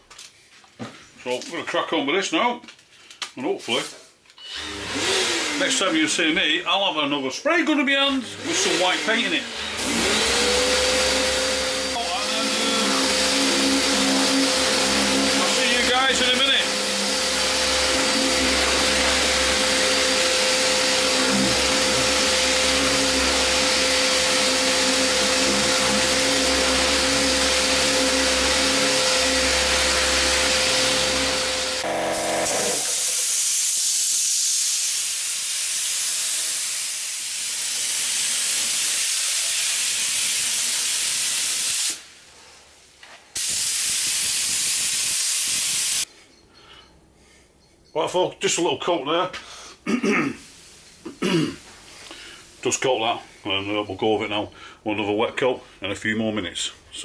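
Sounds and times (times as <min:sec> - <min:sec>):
orbital sander running: 0:04.6 - 0:06.2, 0:08.2 - 0:33.4
paint spray gun hissing: 0:30.8 - 0:42.1, 0:43.4 - 0:46.1.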